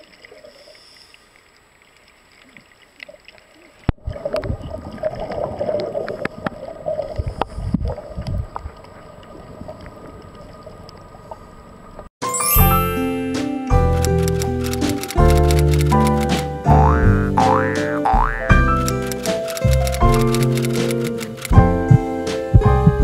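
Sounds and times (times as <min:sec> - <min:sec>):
underwater regulator bubbles: 0:16.7 - 0:18.6.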